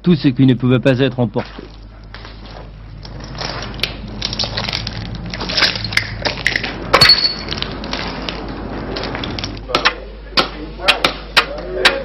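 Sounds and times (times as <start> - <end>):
rubble and glass crunching: 1.4 - 9.7.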